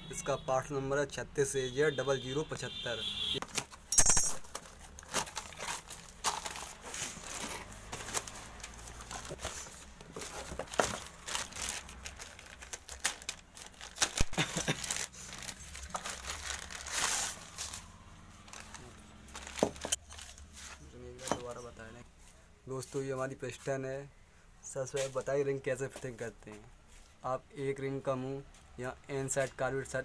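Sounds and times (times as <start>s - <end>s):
plastic bag crinkling: 4.5s - 20.4s.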